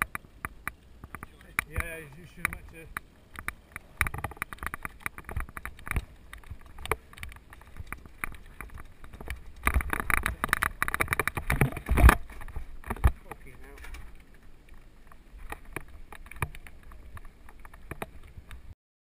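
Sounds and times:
bike handling clicks and knocks: 0:00.0 - 0:14.1
bike rattling down gravel: 0:01.0 - 0:18.5.

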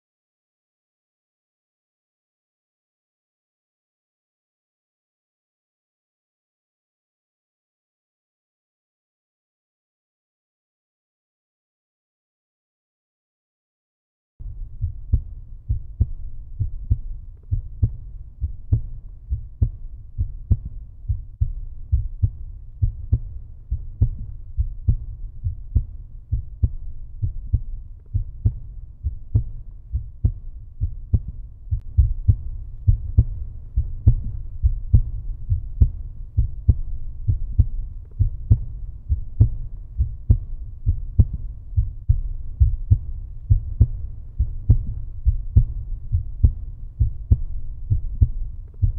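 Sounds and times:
regular low thumps: 0:14.4 - 0:48.9
steady low rumble: 0:14.4 - 0:48.9.

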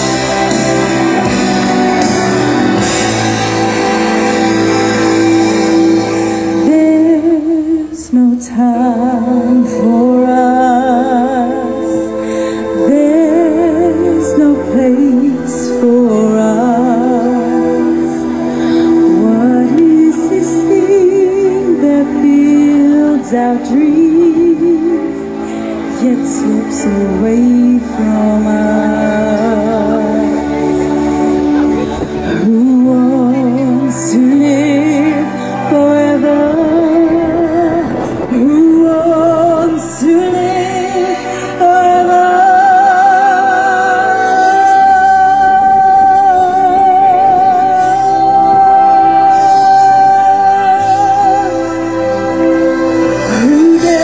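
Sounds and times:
amplified music: 0:00.0 - 0:54.0
backing track through speakers: 0:00.0 - 0:54.0
woman singing into microphone: 0:00.0 - 0:54.0.

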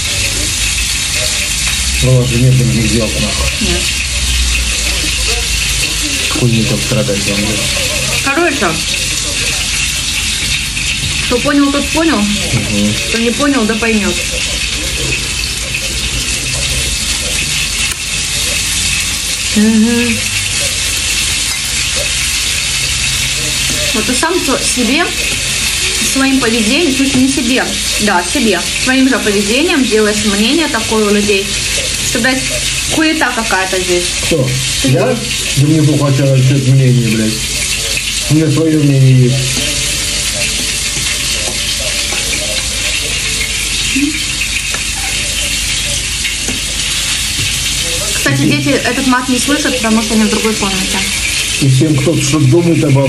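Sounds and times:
meat sizzling in a pan: 0:00.0 - 0:53.0
person humming: 0:19.5 - 0:20.4, 0:43.9 - 0:44.3.

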